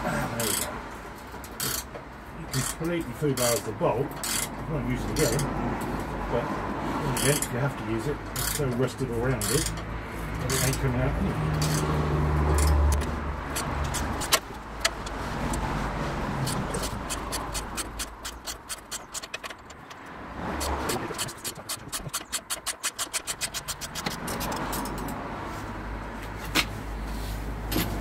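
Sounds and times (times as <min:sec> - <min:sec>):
socket ratchet clicking: 0:01.5 - 0:01.9, 0:04.2 - 0:04.5, 0:07.2 - 0:07.5, 0:08.3 - 0:08.7, 0:09.4 - 0:09.8, 0:11.6 - 0:15.7, 0:16.4 - 0:25.2.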